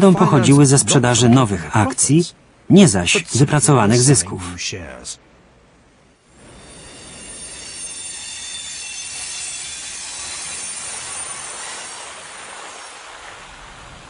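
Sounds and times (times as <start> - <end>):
steady hiss: 0.0 - 14.0
train wheels squealing: 6.3 - 13.2.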